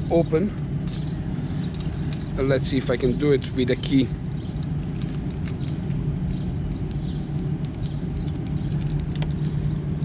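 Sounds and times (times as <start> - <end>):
steady low hum: 0.0 - 10.0
car key clicking and jingling: 3.8 - 6.4, 8.6 - 10.0.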